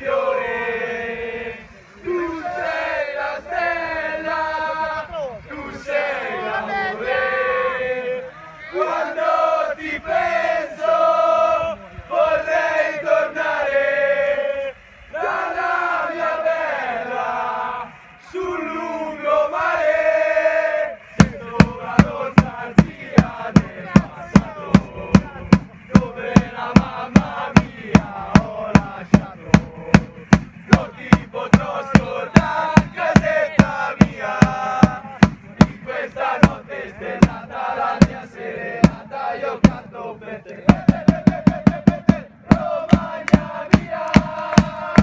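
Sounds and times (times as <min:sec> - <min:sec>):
football fans chanting: 0:00.0 - 0:45.0
drum beaten steadily: 0:21.0 - 0:45.0.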